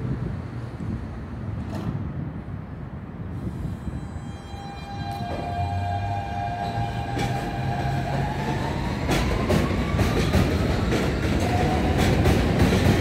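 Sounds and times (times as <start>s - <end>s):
subway train motor whine: 3.3s - 13.0s
wheels clacking over rail joints: 6.4s - 13.0s.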